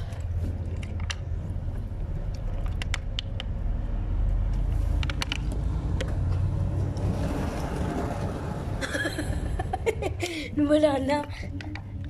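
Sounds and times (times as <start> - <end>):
low steady rumble: 0.0 - 12.0
plastic bottle clicking and crackling: 2.3 - 3.5, 4.9 - 6.2.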